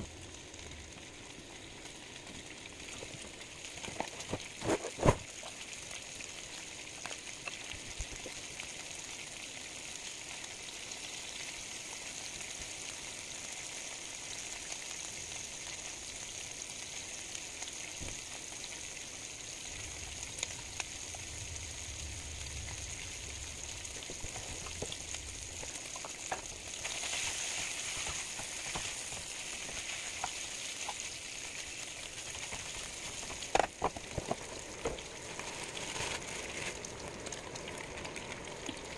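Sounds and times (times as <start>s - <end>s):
bacon sizzling in a frying pan: 0.0s - 38.9s.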